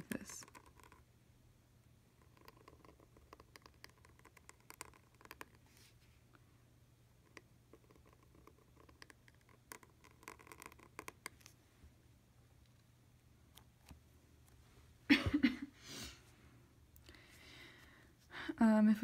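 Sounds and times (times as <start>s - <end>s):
pen nib scratching on paper: 0.0s - 1.0s, 2.2s - 5.9s, 7.2s - 11.5s.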